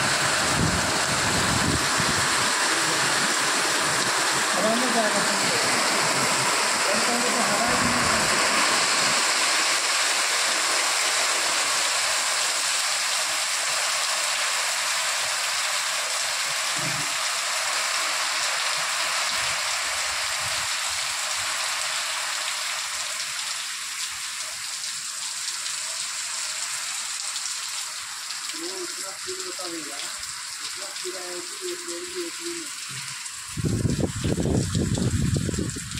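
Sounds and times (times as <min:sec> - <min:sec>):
wind storm: 0:00.0 - 0:02.5, 0:33.6 - 0:35.9
heavy rain pouring: 0:00.0 - 0:35.9
water rushing on flooded road: 0:00.0 - 0:35.9.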